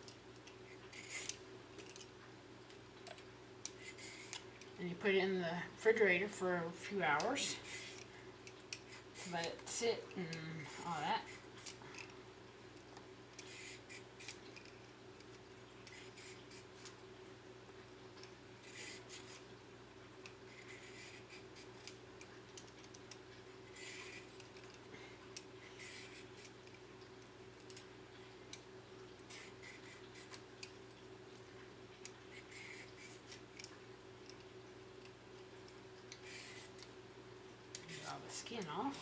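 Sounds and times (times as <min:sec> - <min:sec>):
steady low hum: 0:00.0 - 0:39.0
vegetable peeler scraping: 0:00.7 - 0:02.0, 0:13.4 - 0:14.8, 0:20.5 - 0:22.0, 0:36.1 - 0:36.9.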